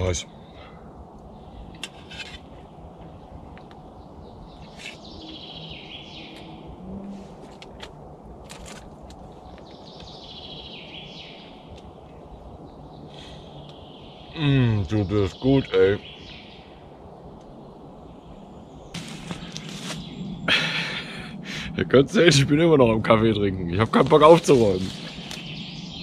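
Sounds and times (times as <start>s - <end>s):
songbird singing: 0.0s - 26.0s.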